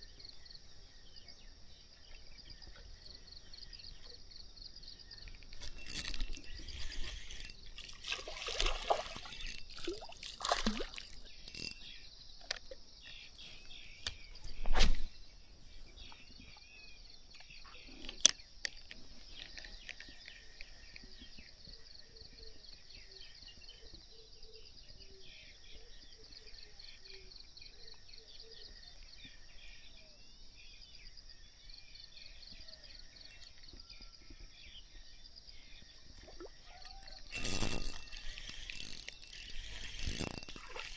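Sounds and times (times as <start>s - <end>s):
insects chirping: 0.0s - 40.9s
fish splashing at water surface: 5.6s - 11.8s.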